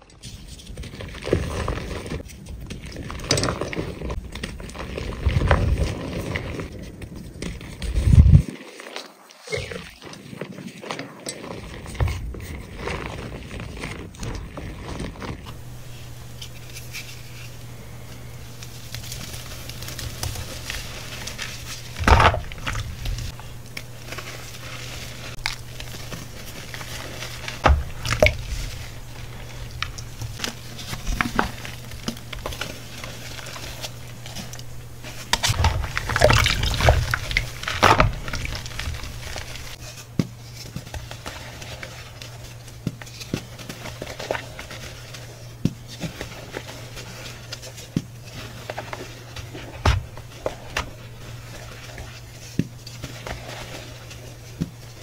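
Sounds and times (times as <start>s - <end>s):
steady low hum: 15.4s - 55.0s
chalk powder crunching in hands: 15.5s - 39.9s.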